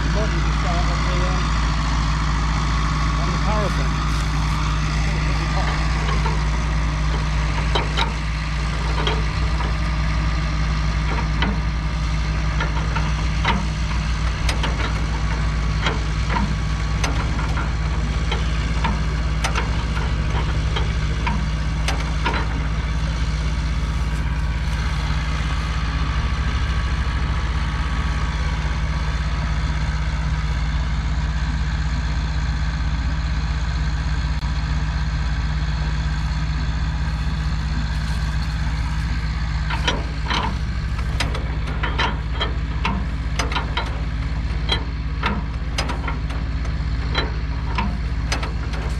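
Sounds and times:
engine idling: 0.0 - 48.9
metallic clicks and clanks: 3.2 - 27.4, 37.1 - 48.9.

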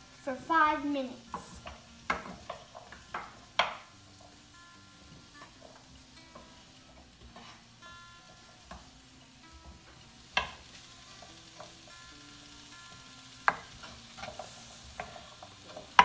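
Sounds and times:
vegetables sauteing in oil: 0.0 - 16.0
wooden spatula knocking on pan: 1.3 - 4.3, 9.6 - 11.8, 13.4 - 16.0.

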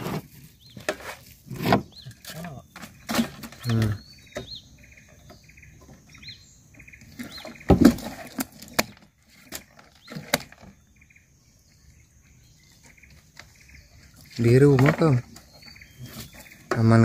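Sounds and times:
sharp knocks and thumps: 7.2 - 10.8, 14.4 - 17.0.

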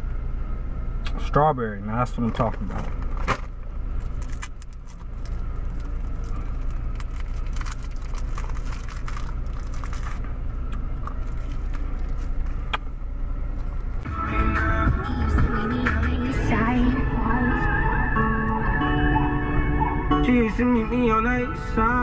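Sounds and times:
car cabin engine hum: 0.0 - 22.0
plastic wrapper crinkling: 4.0 - 12.6.

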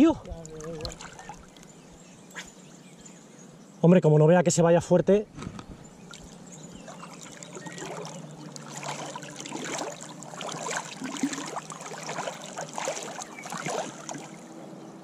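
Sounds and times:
river water splashing: 0.4 - 1.7, 6.0 - 14.6.

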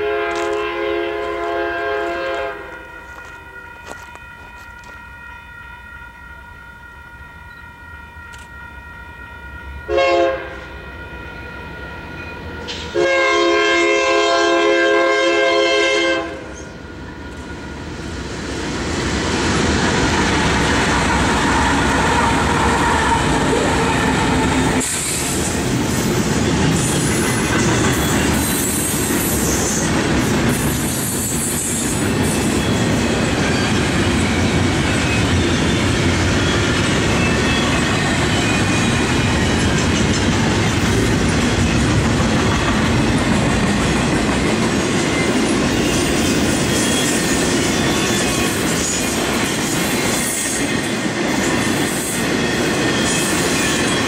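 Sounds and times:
locomotive air horn blasts: 0.0 - 3.8, 9.9 - 11.3, 12.7 - 16.5
train wheels rumbling on rails: 10.6 - 13.2, 16.2 - 54.0
train hissing and squealing: 19.0 - 40.0, 45.0 - 54.0.

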